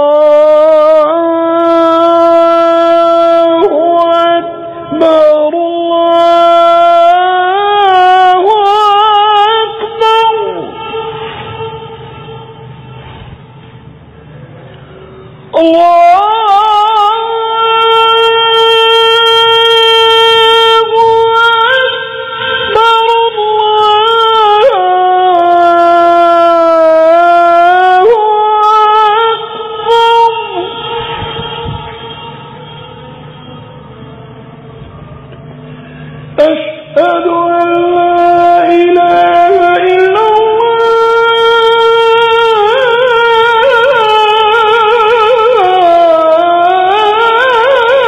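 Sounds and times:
man chanting call to prayer: 0.0s - 12.5s, 15.5s - 33.9s, 36.2s - 48.0s.

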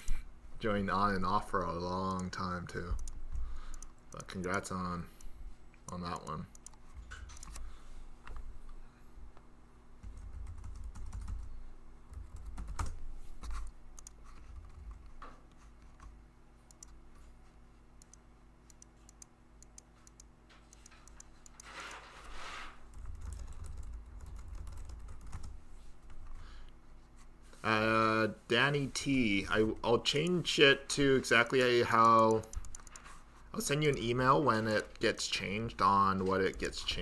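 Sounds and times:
low electrical hum: 0.0s - 37.0s
keyboard keystroke clicks: 31.4s - 33.0s.

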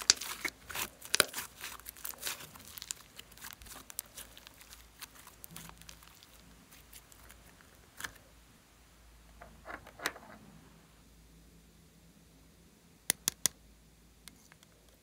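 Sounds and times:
sticky slime crackles and clicks: 0.0s - 8.2s.

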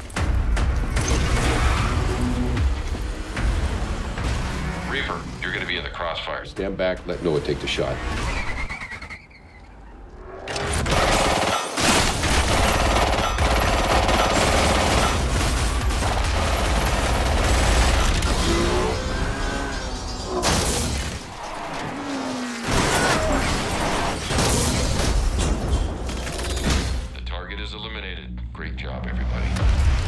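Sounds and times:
film music score: 0.0s - 9.0s, 9.7s - 30.0s
rapid gunfire: 10.8s - 18.8s.

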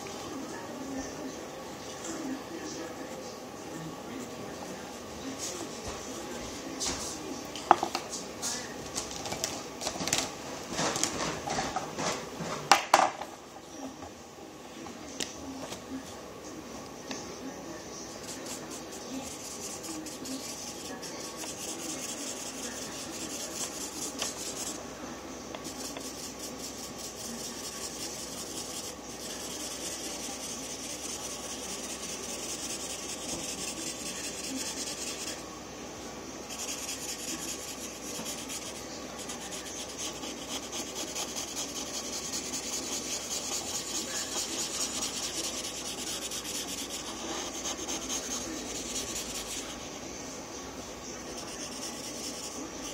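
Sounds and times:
marker scribbling on paper: 18.1s - 24.8s, 25.6s - 35.4s, 36.5s - 49.8s, 51.2s - 52.9s.

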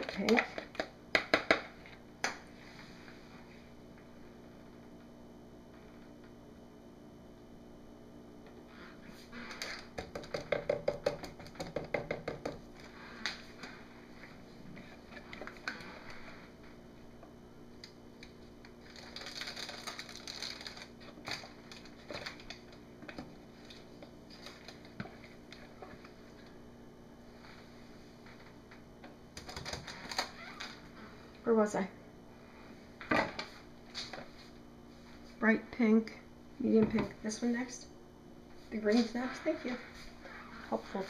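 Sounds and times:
plastic cups rattling and clicking: 0.0s - 1.6s, 9.5s - 13.6s, 18.7s - 25.7s.

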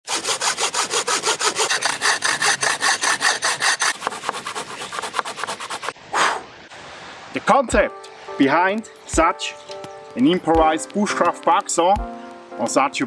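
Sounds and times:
hand saw cutting a log: 0.0s - 6.0s.

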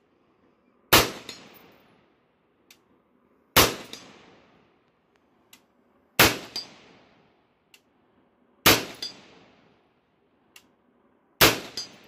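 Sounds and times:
rifle shot: 0.9s - 1.8s, 3.6s - 4.6s, 6.2s - 7.2s, 8.6s - 9.6s, 11.4s - 12.0s.

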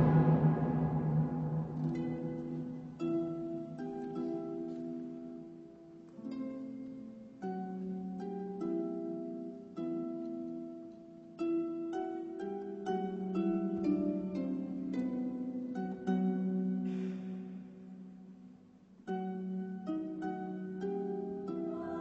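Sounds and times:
soft sustained background music: 0.0s - 3.9s.

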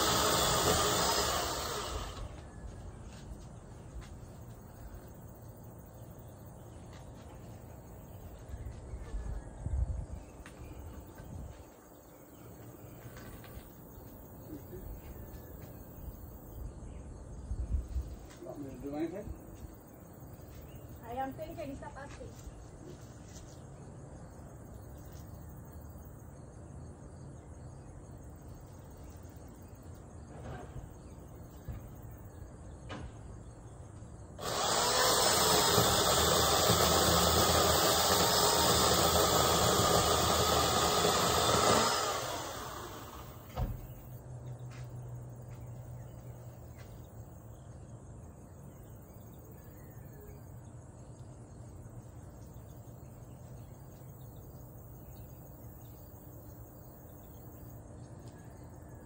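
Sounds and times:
electric chainsaw running: 0.0s - 2.4s, 34.4s - 43.6s.

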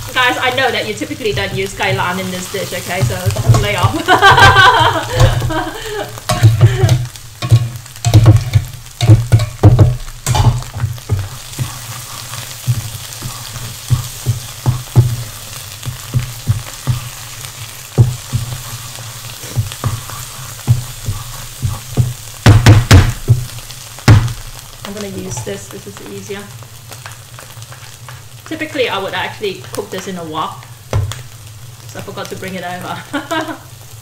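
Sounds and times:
paste sizzling in oil: 0.0s - 34.0s
wooden spatula knocking on pan: 3.0s - 11.8s, 12.6s - 18.7s, 19.5s - 24.4s, 30.9s - 31.2s.

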